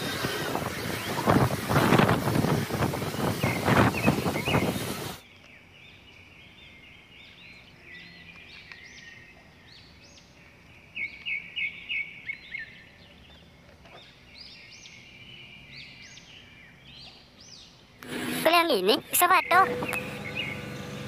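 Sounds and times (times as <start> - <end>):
small birds chirping: 0.0 - 21.0
bird calling sharp notes: 18.3 - 21.0.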